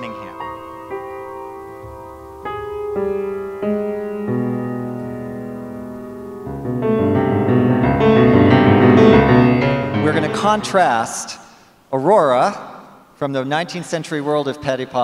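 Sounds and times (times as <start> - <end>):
grand piano playing: 0.0 - 11.3.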